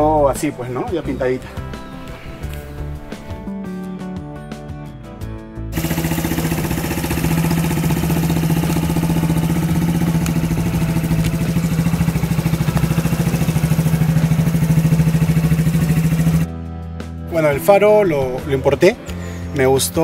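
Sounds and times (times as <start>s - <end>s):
motorcycle engine running: 5.7s - 16.5s.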